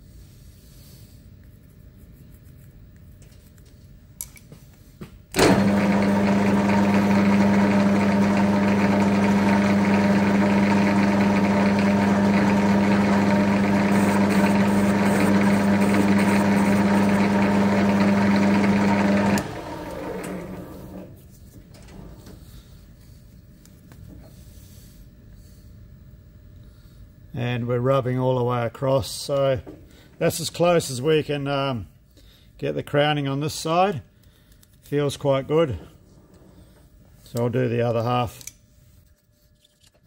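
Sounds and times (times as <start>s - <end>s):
metal lathe running: 5.5s - 21.1s.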